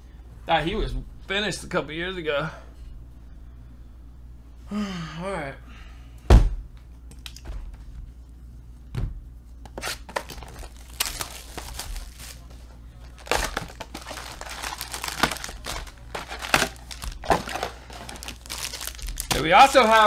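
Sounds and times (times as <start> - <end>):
thump: 6.3 - 6.6
foil packs rustling: 9.8 - 20.0
shrink-wrap crinkling and tearing: 9.8 - 20.0.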